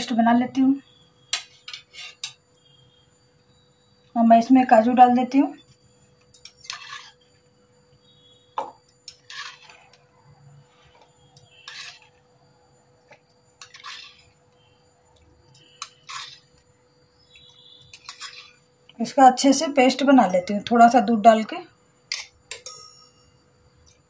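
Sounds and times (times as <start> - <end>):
spoon clinking on steel bowls: 5.6 - 7.2, 15.1 - 16.6, 17.4 - 18.6, 22.1 - 24.0.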